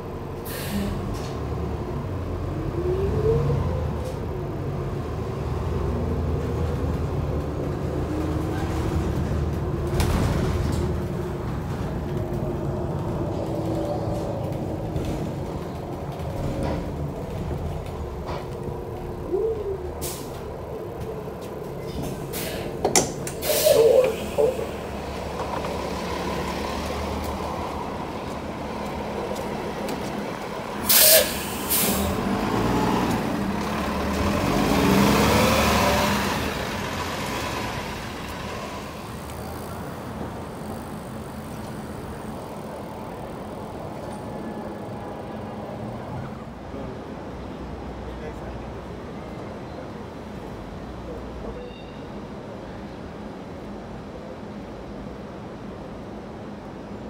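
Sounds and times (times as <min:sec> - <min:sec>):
bus engine and transmission whine: 0:00.0 - 0:57.0
bus air hisses: 0:00.4 - 0:01.1, 0:22.2 - 0:22.8, 0:23.4 - 0:24.8, 0:30.8 - 0:32.2.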